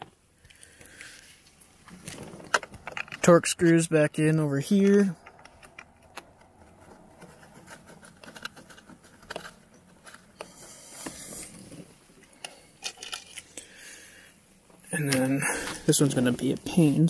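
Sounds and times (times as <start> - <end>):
fingers scraping plastic trim: 5.3 - 11.8.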